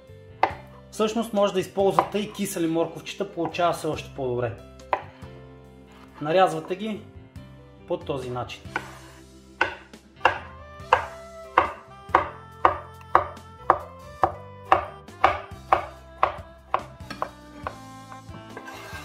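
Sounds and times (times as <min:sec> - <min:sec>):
knife chopping carrots: 0:00.4 - 0:00.7, 0:01.8 - 0:02.5, 0:04.8 - 0:05.3, 0:08.7 - 0:19.0.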